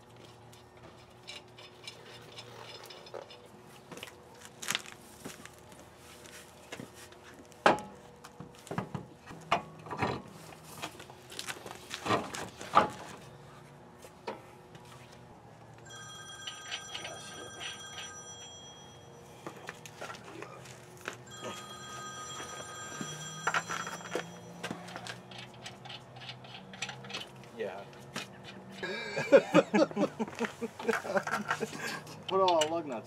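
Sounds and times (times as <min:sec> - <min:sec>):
high electronic ringing: 0:15.8 - 0:20.2, 0:21.2 - 0:25.6.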